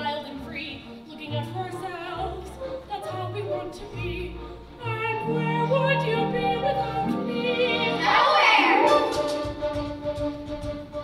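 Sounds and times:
instrumental accompaniment: 0.0s - 11.0s
opera singers with vibrato: 1.5s - 9.4s.

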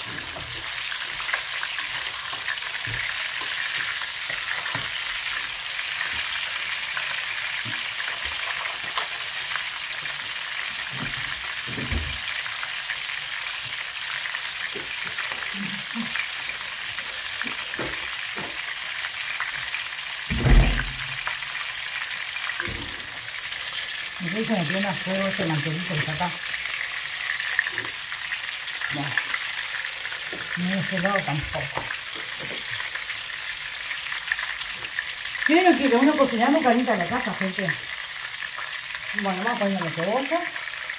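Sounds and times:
chicken sizzling in a frying pan: 0.0s - 40.9s
dull thump: 20.3s - 21.1s.

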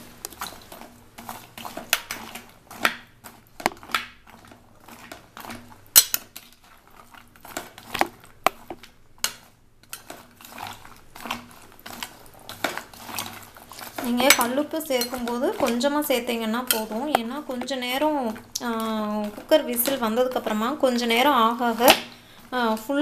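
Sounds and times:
metal spoon scraping metal pot: 11.8s - 18.4s.

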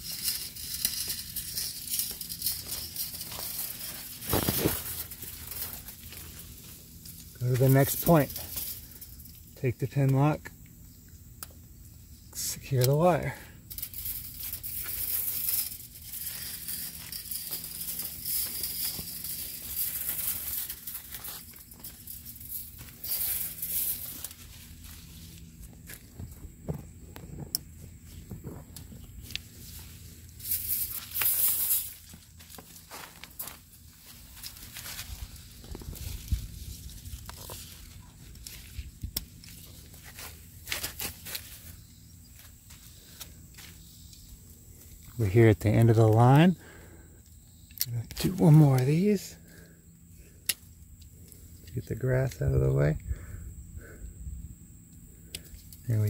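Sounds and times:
handling noise: 0.0s - 9.0s
leaves rustling and crinkling: 0.0s - 46.9s, 47.8s - 53.0s
footsteps through plants: 1.1s - 8.8s, 14.6s - 43.9s.

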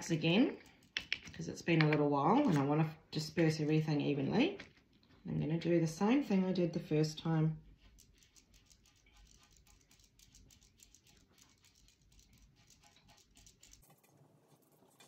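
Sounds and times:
brush bristles scratching: 7.7s - 13.8s.

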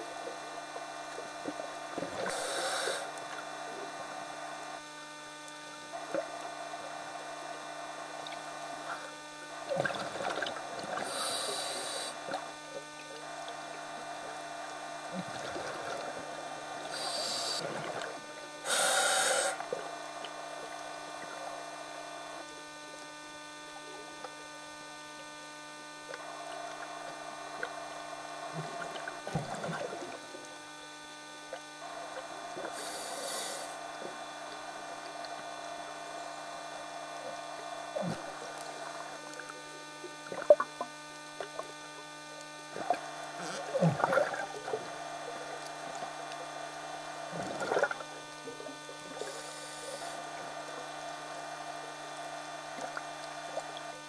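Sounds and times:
scuba regulator hissing: 2.3s - 3.1s, 11.0s - 12.1s, 16.9s - 17.6s, 18.7s - 19.6s, 32.8s - 33.8s
bubbly gurgles: 9.6s - 11.2s, 15.1s - 17.0s, 28.4s - 30.4s, 37.9s - 41.7s, 42.7s - 46.6s, 47.3s - 49.4s.

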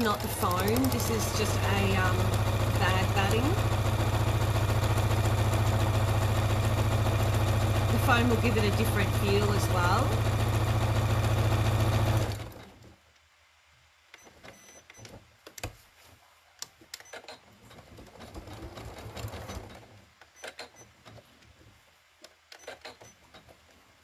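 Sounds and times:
electric sewing machine stitching: 0.0s - 12.8s, 17.2s - 20.8s.

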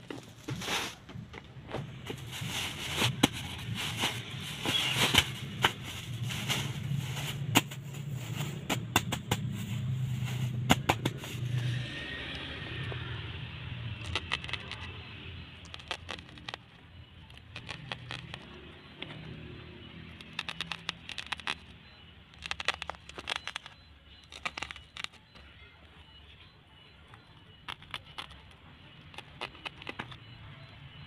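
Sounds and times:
plastic sack rustling: 0.0s - 11.5s.

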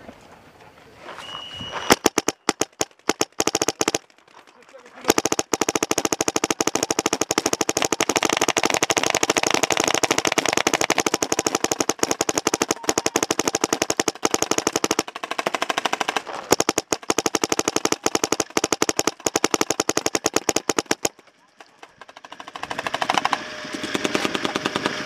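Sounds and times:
paintball marker firing: 1.9s - 25.0s.

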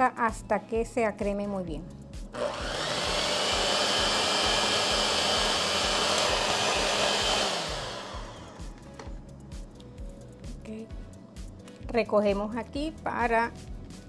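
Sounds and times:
electric hand mixer whining: 2.3s - 8.8s.

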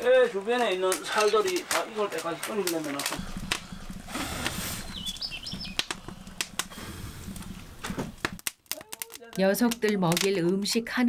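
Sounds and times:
firewood crackling and popping: 0.0s - 11.0s
low fluttering fire rumble: 1.0s - 8.5s
small bird chirping: 3.2s - 7.0s.

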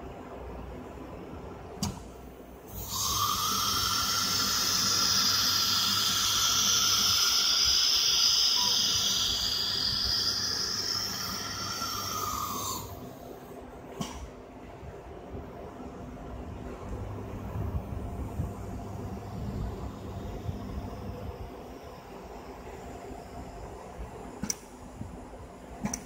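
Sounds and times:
router spindle hissing: 2.7s - 13.0s.

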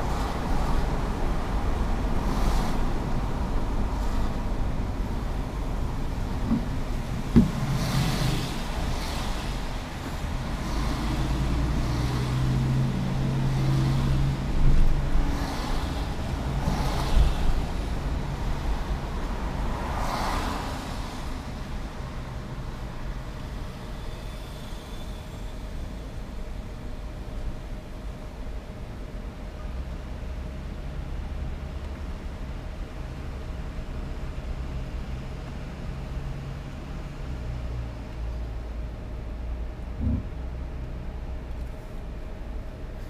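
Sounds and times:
car road and engine rumble: 0.0s - 43.0s
tyre hiss on wet road: 2.2s - 3.1s, 6.9s - 12.8s, 15.3s - 21.8s.

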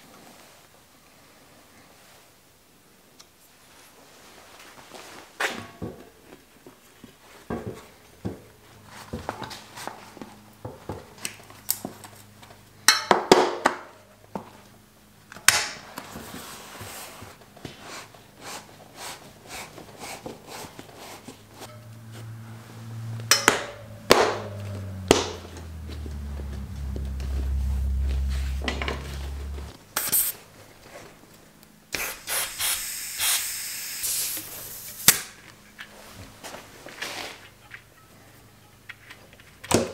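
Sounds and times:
rubber tyre rustling and flexing: 23.8s - 29.7s.

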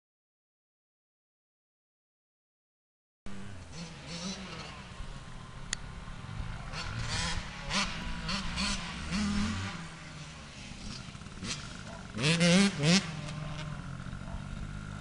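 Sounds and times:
motocross bike engine revving: 3.3s - 15.0s.

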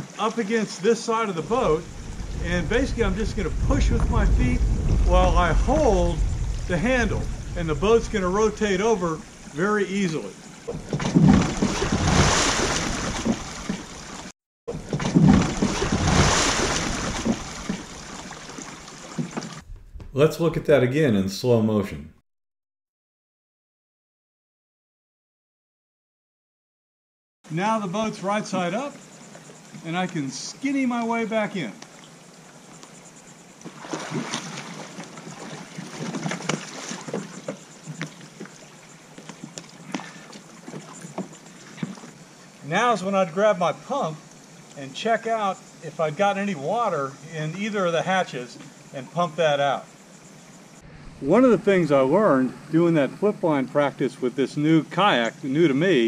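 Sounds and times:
water splashing and sloshing: 0.0s - 20.2s, 31.8s - 42.8s.

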